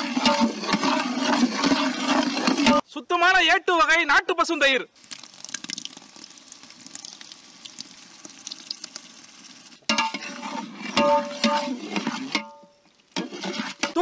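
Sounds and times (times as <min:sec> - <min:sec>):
ladle scraping a metal pot: 0:00.0 - 0:02.8, 0:09.8 - 0:14.0
masala sizzling in a pot: 0:00.0 - 0:02.8, 0:05.0 - 0:14.0.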